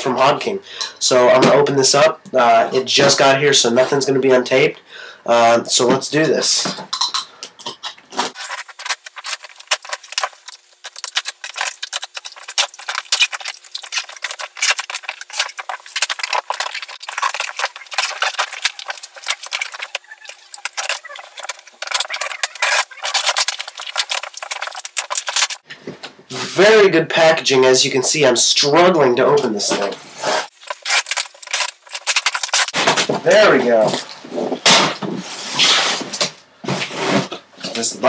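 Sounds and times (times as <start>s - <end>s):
knife slitting packing tape: 8.2s - 20.0s, 20.6s - 25.6s, 30.4s - 32.9s
cardboard scraping and rustling: 29.8s - 37.4s.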